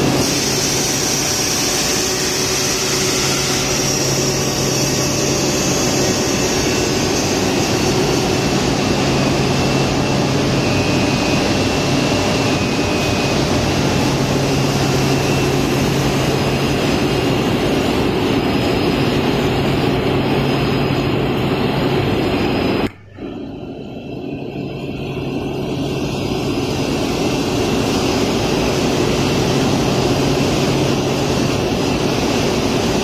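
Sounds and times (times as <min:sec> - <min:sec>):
factory machinery drone: 0:00.0 - 0:33.0.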